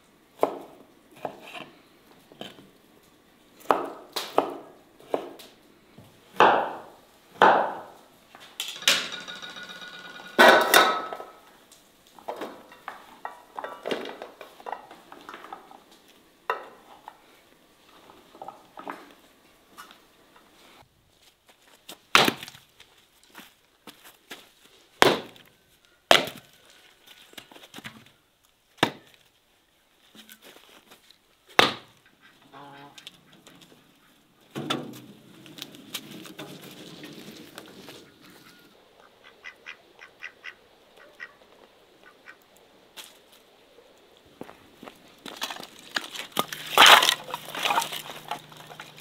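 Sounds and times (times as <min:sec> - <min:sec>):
fowl calling: 0:32.0 - 0:34.4, 0:38.0 - 0:41.4, 0:42.0 - 0:42.4
geese honking: 0:38.0 - 0:41.4.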